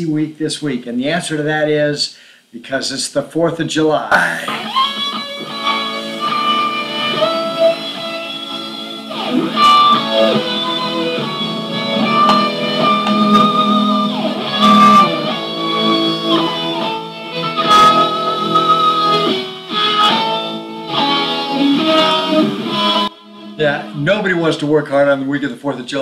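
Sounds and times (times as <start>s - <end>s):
electric guitar lead: 4.1s - 24.7s
backing music: 4.1s - 25.1s.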